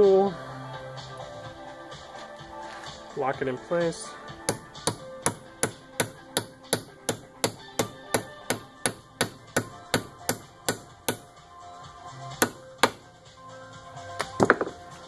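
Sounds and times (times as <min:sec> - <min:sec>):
hammer tapping on metal tool: 0:04.5 - 0:11.3, 0:12.4 - 0:13.0.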